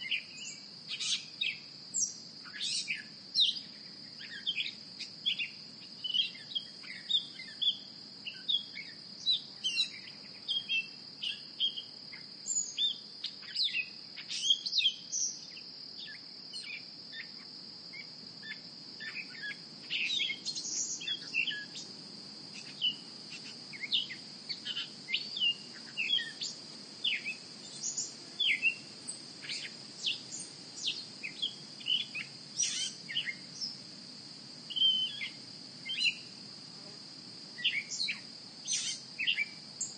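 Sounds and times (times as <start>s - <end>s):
high-pitched insect drone: 18.0s - 33.8s.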